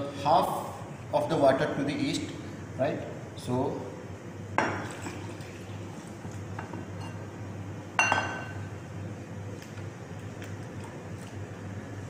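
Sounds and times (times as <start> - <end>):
glass bowl set down on stone: 8.0 - 8.6.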